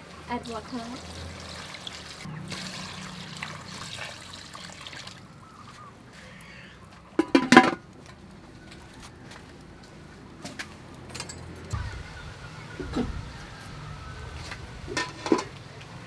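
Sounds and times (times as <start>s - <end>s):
water pouring into a pot: 0.0s - 5.4s
metal lid clattering on pot: 7.2s - 7.8s, 14.9s - 15.6s.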